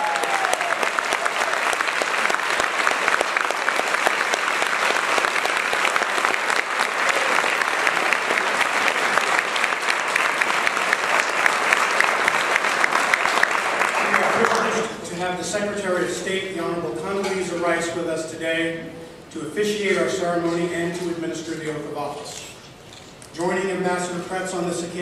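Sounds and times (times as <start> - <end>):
audience applauding: 0.0 - 14.8.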